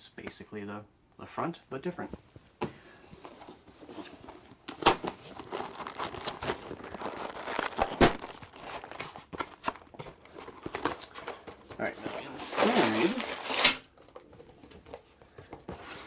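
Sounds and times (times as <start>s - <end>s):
cardboard crinkling and tearing: 3.8s - 14.2s
sharp cardboard cracks: 4.7s - 5.2s, 7.4s - 10.0s, 12.6s - 13.9s.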